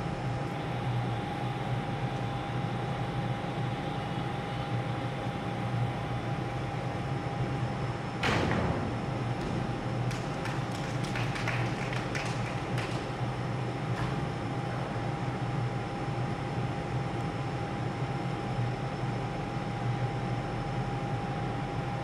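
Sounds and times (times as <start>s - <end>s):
ventilation hum: 0.0s - 22.0s
loud thud of gymnast landing: 8.2s - 11.1s.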